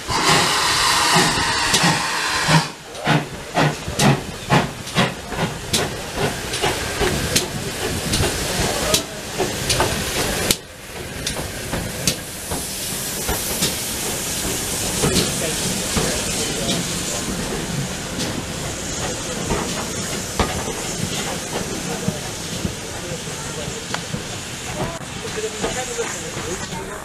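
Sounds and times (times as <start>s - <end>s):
steam hissing: 0.0s - 27.0s
steam locomotive exhaust beats: 0.0s - 27.0s.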